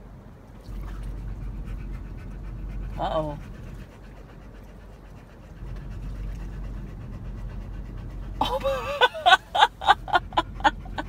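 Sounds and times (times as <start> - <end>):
low steady rumble: 0.0 - 11.0
person laughing: 8.4 - 11.0.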